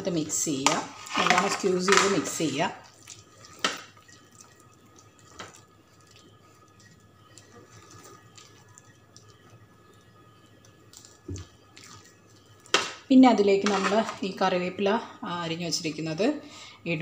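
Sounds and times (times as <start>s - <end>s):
hand squishing wet batter: 1.0s - 13.0s.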